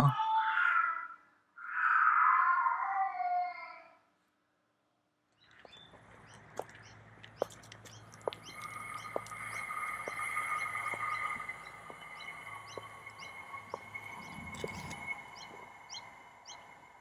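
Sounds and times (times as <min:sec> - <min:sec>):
birds chirping: 0:05.3 - 0:17.0
boot heels on pavement: 0:05.4 - 0:15.7
steady high tones: 0:08.5 - 0:17.0.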